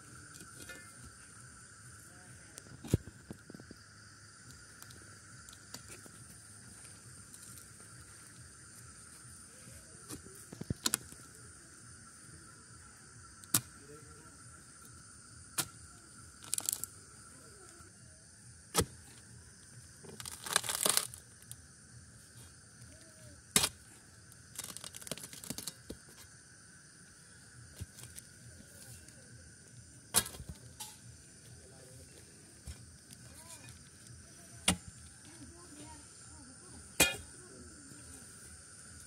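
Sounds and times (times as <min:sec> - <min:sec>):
insects chirring: 0:00.0 - 0:39.0
scraping tearing of roots: 0:20.2 - 0:21.2
iron bar knocking soil: 0:34.6 - 0:34.9, 0:37.0 - 0:37.3.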